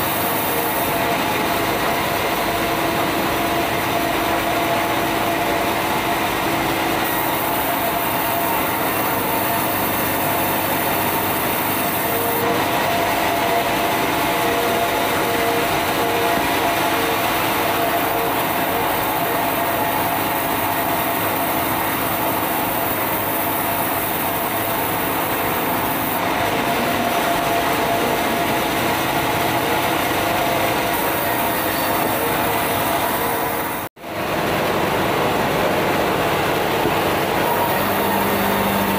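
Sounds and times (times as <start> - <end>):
band saw cutting wood: 6.7 - 33.9, 37.2 - 38.9.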